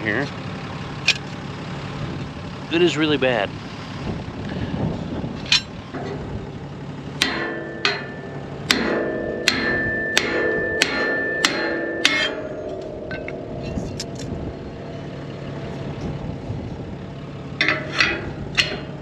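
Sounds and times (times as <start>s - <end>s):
steel clattering: 5.4s - 16.2s, 17.1s - 19.0s
hammer striking steel: 7.2s - 15.8s, 17.6s - 19.0s.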